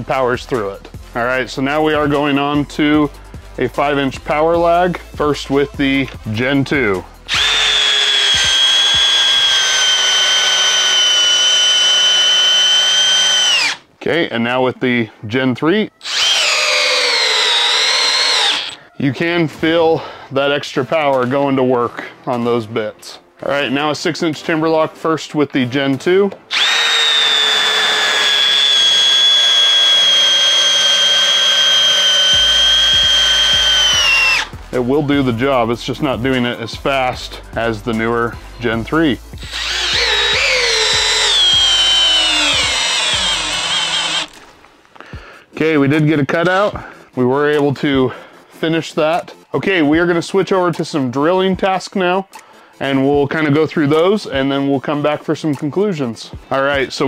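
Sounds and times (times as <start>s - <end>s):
drill motor whine driving screw: 7.3s - 13.8s, 16.0s - 18.8s, 26.5s - 34.6s, 39.4s - 44.4s.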